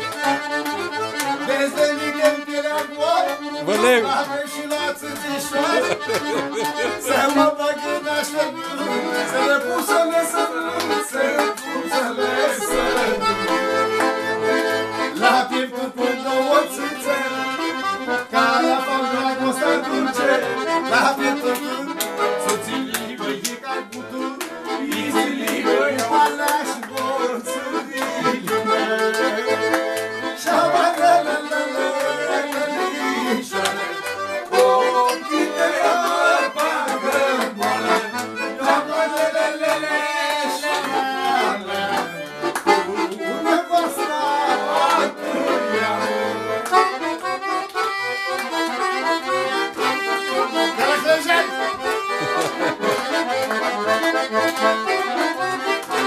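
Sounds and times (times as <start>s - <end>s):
violin: 0.0s - 22.5s, 40.0s - 56.0s
accordion playing folk tune: 0.0s - 56.0s.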